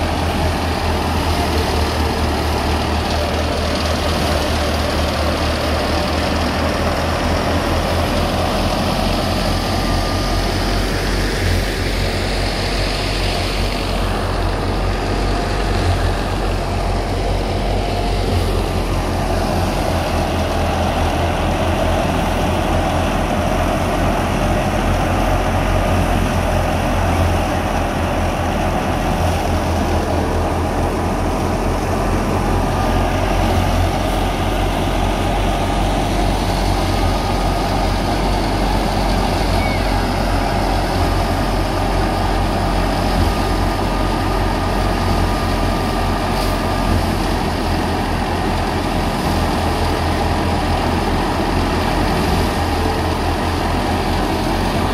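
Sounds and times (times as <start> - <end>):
diesel tractor engine humming: 0.0 - 54.9
threshing drum and fan rushing: 0.0 - 54.9.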